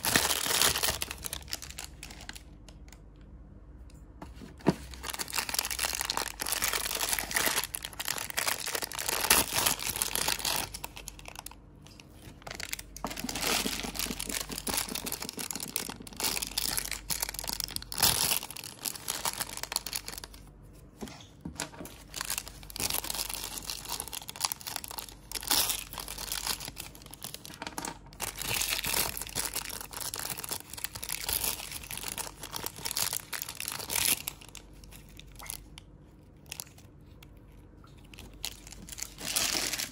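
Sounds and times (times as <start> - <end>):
foil wrappers crinkling and tearing: 0.0 - 2.8, 4.8 - 20.5, 21.6 - 35.8, 36.4 - 37.0, 38.0 - 39.9.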